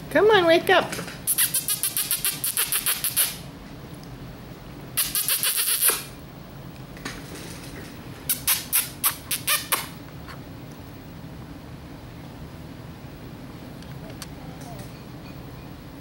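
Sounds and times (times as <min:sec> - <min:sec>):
person making kissing noises: 0:01.3 - 0:03.4, 0:05.0 - 0:06.1, 0:08.3 - 0:10.4.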